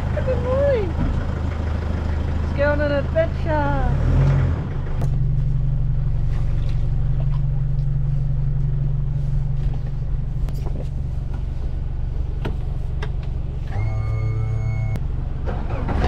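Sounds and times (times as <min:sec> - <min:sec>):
vehicle engine droning: 0:00.0 - 0:16.0.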